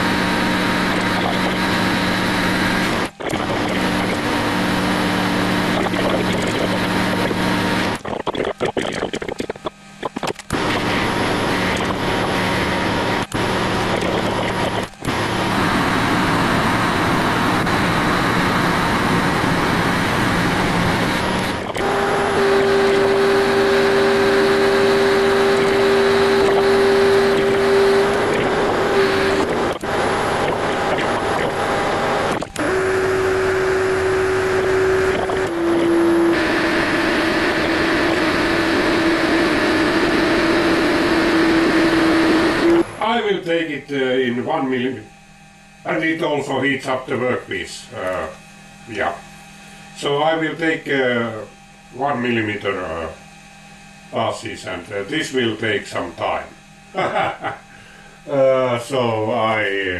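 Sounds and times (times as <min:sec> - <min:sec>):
metal lathe machining: 0:00.0 - 0:08.4, 0:09.6 - 0:43.4
steady hum-like tone: 0:00.0 - 0:59.9.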